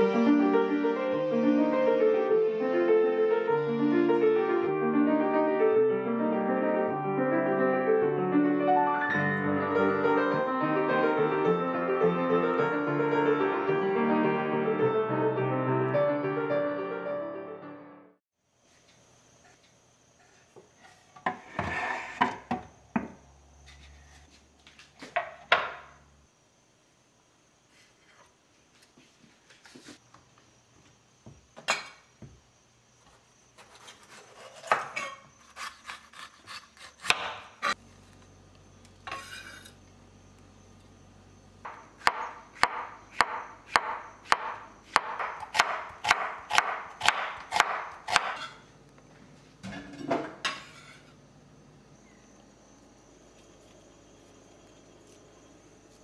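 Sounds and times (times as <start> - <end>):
knife chopping on wooden board: 33.6 - 37.8, 41.6 - 48.6.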